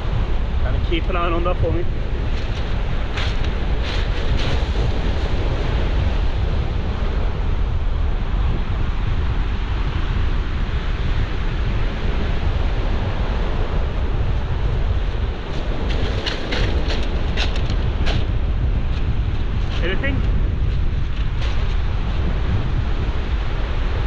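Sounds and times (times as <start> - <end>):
wind buffeting microphone: 0.0 - 24.0
surf breaking on shingle: 15.6 - 18.3.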